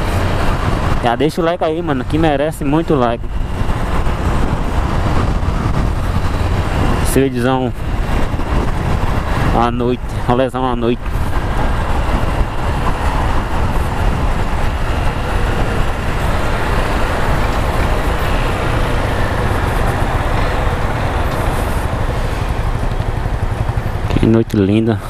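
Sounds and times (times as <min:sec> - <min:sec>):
wind rushing over microphone: 0:00.0 - 0:25.0
motorcycle engine running: 0:11.0 - 0:25.0.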